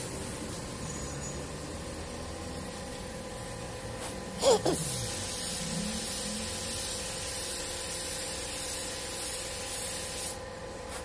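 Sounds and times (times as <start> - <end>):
spray gun hissing: 4.4 - 10.4.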